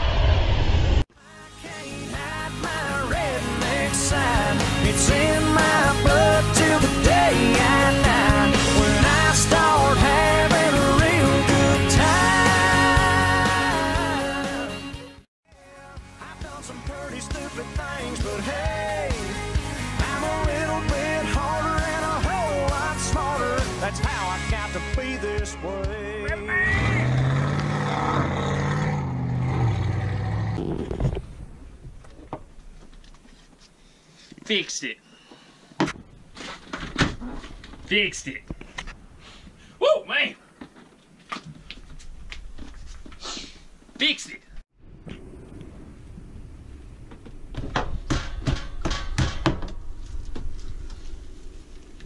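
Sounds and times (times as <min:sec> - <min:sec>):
sharp knocks and rustles: 0:47.0 - 0:52.0.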